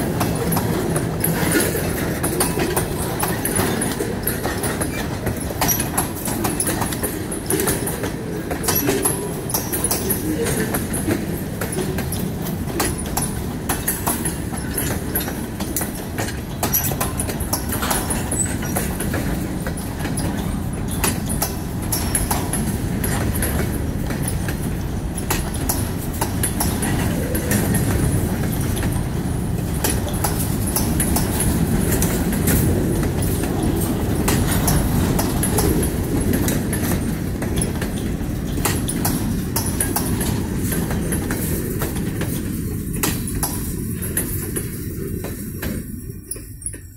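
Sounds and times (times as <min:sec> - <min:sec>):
train wheels rumbling on rails: 0:00.0 - 0:46.9
wheels clacking over rail joints: 0:00.0 - 0:46.9.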